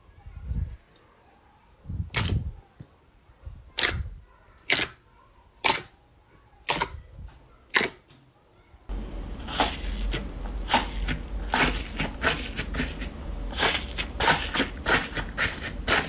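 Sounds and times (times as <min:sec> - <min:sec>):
slime squishing: 0:03.7 - 0:05.0, 0:07.7 - 0:08.0, 0:09.1 - 0:16.0.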